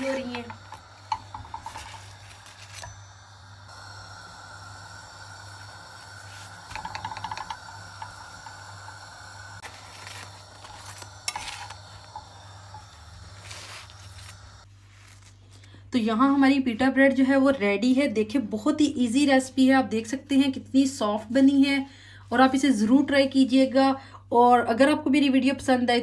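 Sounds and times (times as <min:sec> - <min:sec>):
faint steady hiss: 0:00.0 - 0:14.7
metal spatula clattering on griddle: 0:06.7 - 0:07.7.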